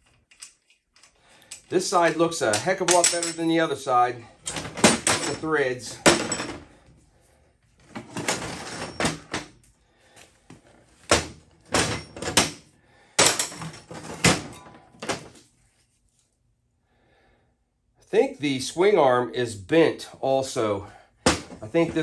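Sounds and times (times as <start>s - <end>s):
metal parts scraping and rattling: 0.0s - 6.8s, 7.8s - 9.6s, 13.2s - 15.4s.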